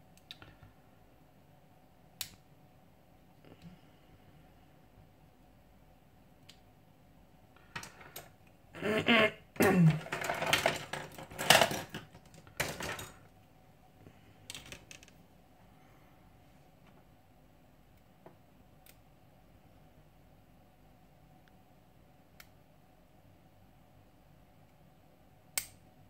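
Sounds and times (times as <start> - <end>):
tools clattering on workbench: 9.8 - 13.2.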